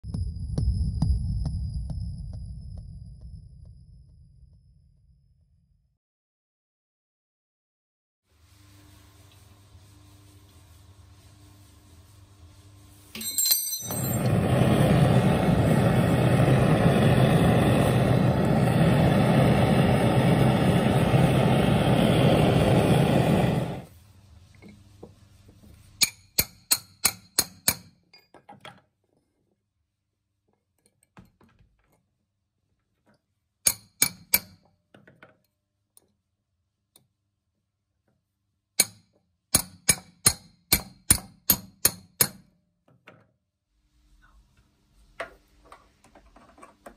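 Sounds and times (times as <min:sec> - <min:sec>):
hammer clinking on steel: 0:13.2 - 0:14.3.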